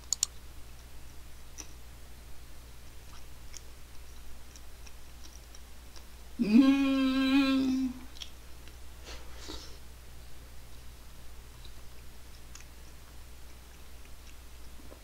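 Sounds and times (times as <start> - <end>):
eating clicks: 0.0 - 0.4
woman humming mmm: 6.4 - 8.1.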